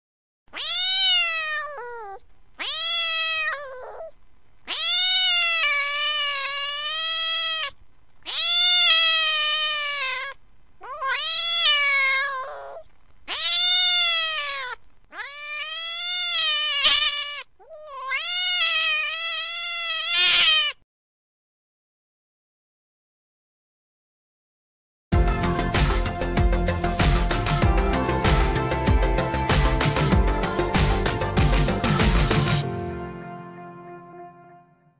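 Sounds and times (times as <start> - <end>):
cat meowing: 0.5 - 20.8.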